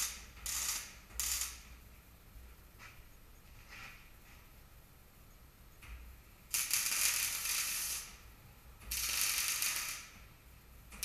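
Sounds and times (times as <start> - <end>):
welding arc crackling: 0.0 - 1.8, 6.5 - 10.3.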